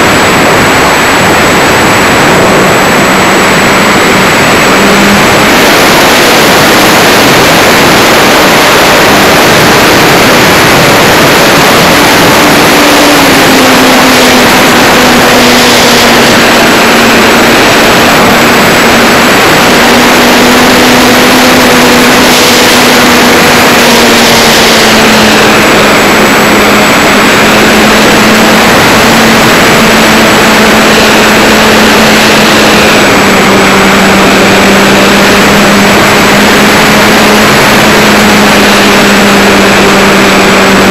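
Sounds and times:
electric motor and propeller: 0.0s - 40.9s
wind rush over microphone: 0.0s - 40.9s.

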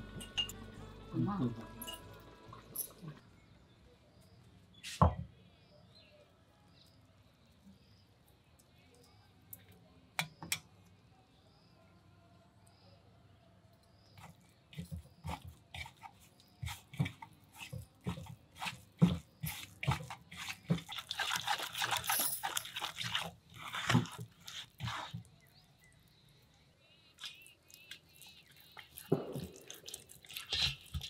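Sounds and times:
hand squelching wet paste: 14.2s - 31.0s.

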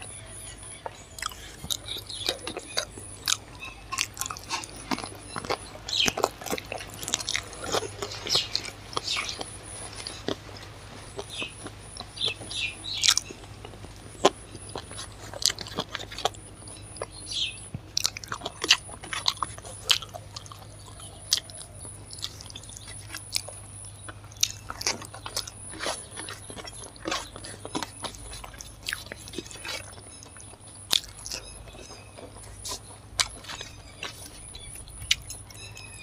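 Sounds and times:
person chewing food: 0.0s - 36.0s.

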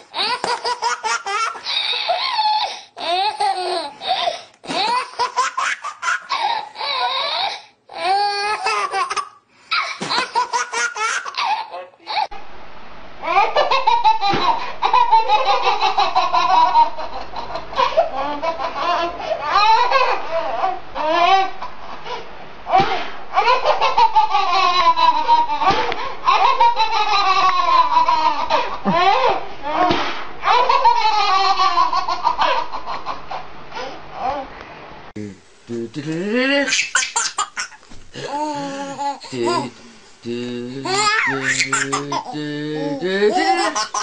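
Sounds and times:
baby laughing and squealing: 0.1s - 12.3s, 13.2s - 21.7s, 22.7s - 25.7s, 36.6s - 39.7s, 40.9s - 44.0s.

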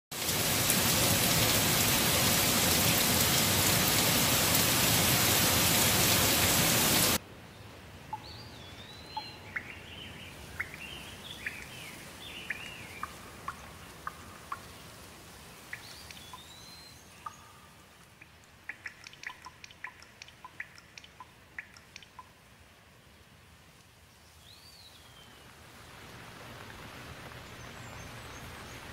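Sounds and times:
heavy rain: 0.1s - 7.4s, 25.4s - 28.9s
birds calling: 8.1s - 14.9s
water drips ticking: 8.1s - 22.6s.

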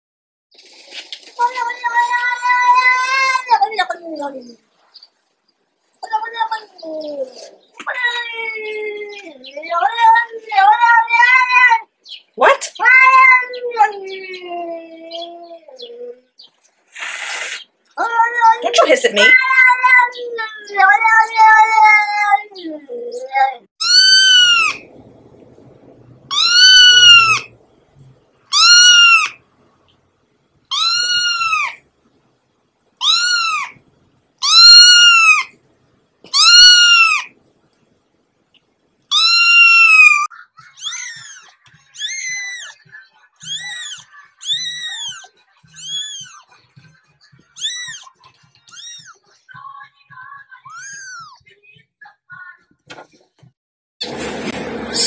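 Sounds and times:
kitten meowing: 23.8s - 24.8s, 26.3s - 27.5s, 28.5s - 29.4s, 30.7s - 31.8s, 33.0s - 33.7s, 34.4s - 35.5s, 36.3s - 37.3s, 39.1s - 42.8s, 43.4s - 46.4s, 47.6s - 48.1s, 48.7s - 49.2s.

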